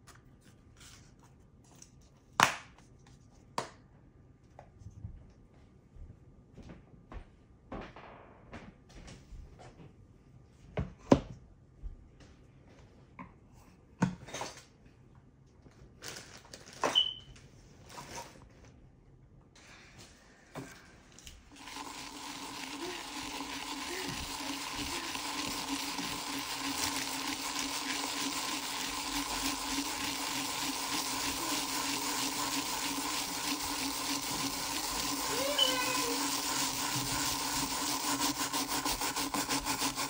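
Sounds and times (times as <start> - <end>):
electric rotary tool humming: 21.6 - 40.0.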